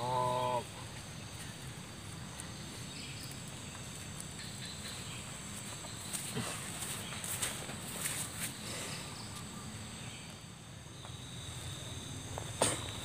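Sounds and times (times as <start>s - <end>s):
insects droning: 0.0s - 13.0s
bare footsteps on grass: 5.3s - 8.6s.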